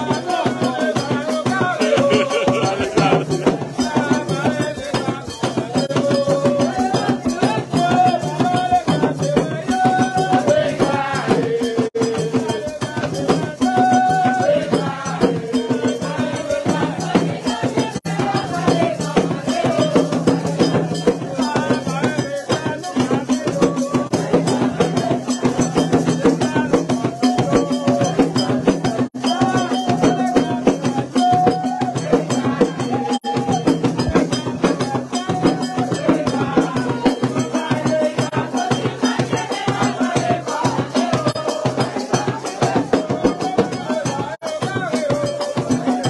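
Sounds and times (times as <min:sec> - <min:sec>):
drums and hand percussion: 0:00.0 - 0:46.0
group of voices singing: 0:00.0 - 0:46.0
struck bell or wood block: 0:22.9 - 0:46.0.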